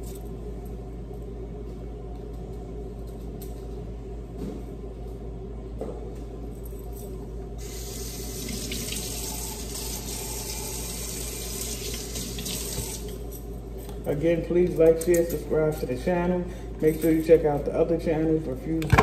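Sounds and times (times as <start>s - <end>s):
steady low hum: 0.0s - 19.0s
kitchen tap running water: 7.6s - 13.1s.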